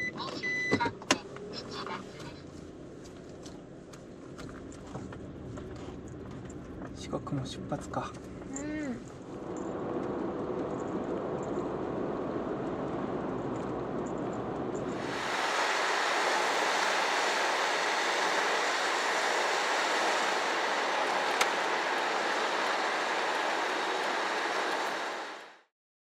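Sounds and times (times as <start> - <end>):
van road and engine noise: 0.0 - 25.7
steady bright hiss: 14.9 - 25.5.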